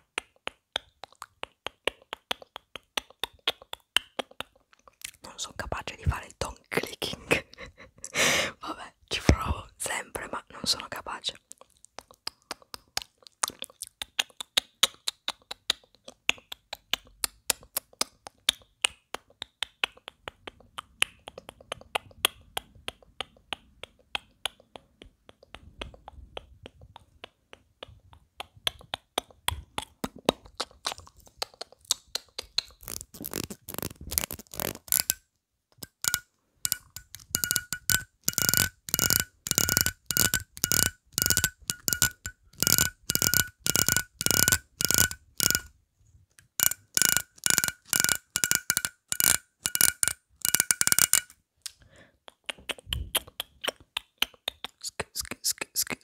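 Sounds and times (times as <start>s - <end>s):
comb teeth clicking: 29.7s - 35.2s, 35.8s - 45.7s, 46.4s - 51.8s.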